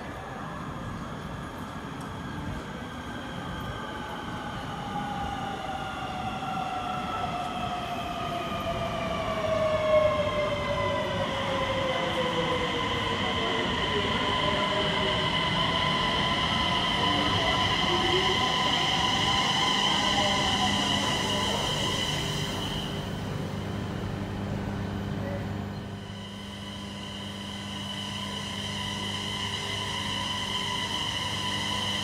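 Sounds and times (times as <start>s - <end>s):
train rumble: 0.0s - 32.0s
train traction motors whining: 8.5s - 32.0s.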